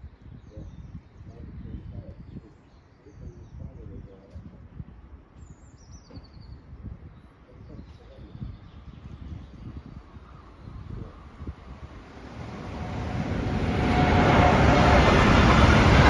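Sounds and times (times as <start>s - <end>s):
small birds chirping: 0.0s - 12.2s
wind buffeting microphone: 0.0s - 16.0s.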